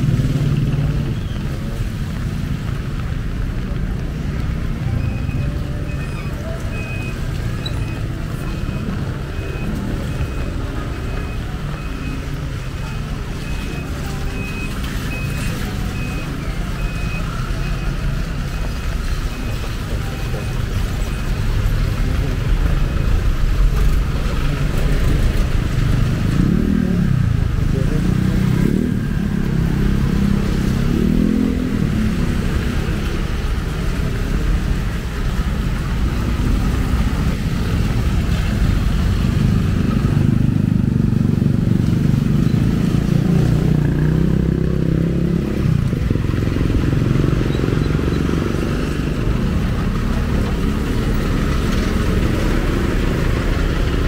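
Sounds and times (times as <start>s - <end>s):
motorcycles passing: 0.0s - 54.0s.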